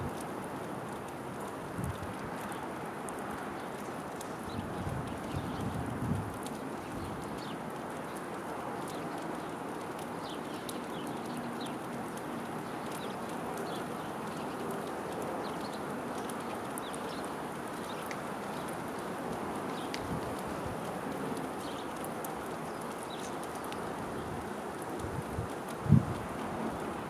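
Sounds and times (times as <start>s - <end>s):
faint sharp clicks: 0.1s - 26.6s
small birds chipping: 6.4s - 26.1s.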